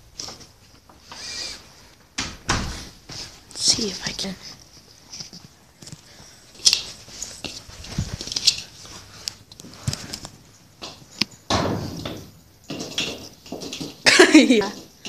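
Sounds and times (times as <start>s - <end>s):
rustling: 0.0s - 11.5s
puppy scrambling on concrete: 4.6s - 14.1s.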